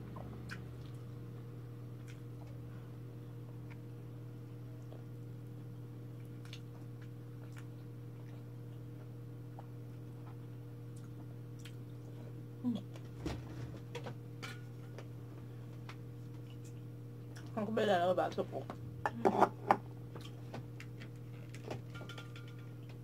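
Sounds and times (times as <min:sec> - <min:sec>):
low hum: 0:00.0 - 0:23.0
person chewing: 0:00.1 - 0:01.2, 0:01.9 - 0:02.7, 0:06.2 - 0:12.2, 0:20.1 - 0:21.7.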